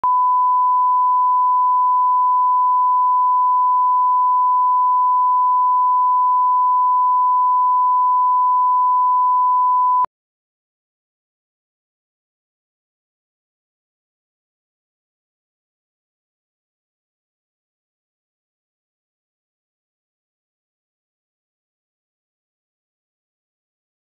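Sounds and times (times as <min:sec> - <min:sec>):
sine-wave line-up tone: 0:00.0 - 0:10.1.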